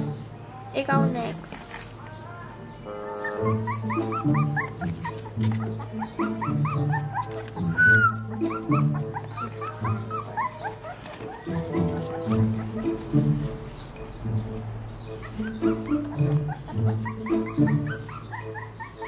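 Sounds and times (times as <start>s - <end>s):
background music: 0.0s - 19.0s
puppies squealing and whimpering: 2.8s - 19.0s.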